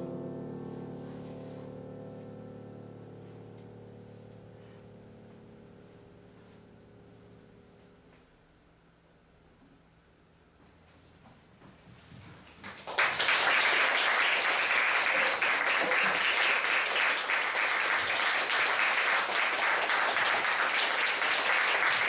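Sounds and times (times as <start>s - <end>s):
audience applauding: 12.6s - 22.0s.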